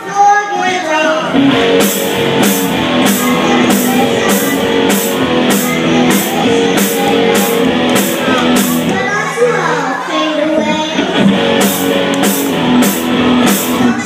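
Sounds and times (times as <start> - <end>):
electric guitar line: 1.2 - 9.5, 11.0 - 14.0
drum kit with cymbal hits: 1.3 - 9.2, 11.0 - 14.0.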